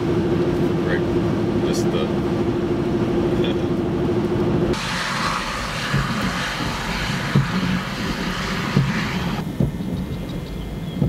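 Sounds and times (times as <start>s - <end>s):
car driving heard from inside: 0.0s - 11.0s
steady hiss: 4.8s - 9.6s
soft low thumps: 5.4s - 11.0s.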